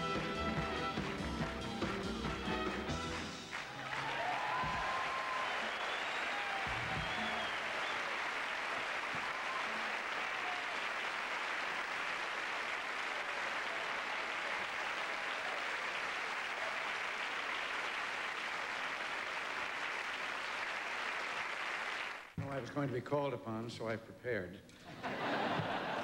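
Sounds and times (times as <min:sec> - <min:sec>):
audience applauding: 0:00.0 - 0:22.4.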